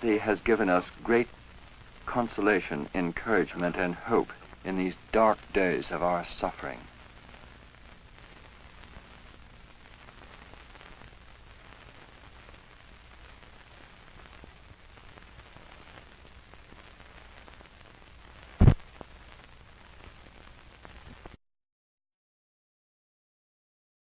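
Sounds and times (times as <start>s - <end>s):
film soundtrack hiss: 0.0s - 21.4s
light crackle: 0.0s - 21.4s
sharp loud pop: 18.6s - 18.8s.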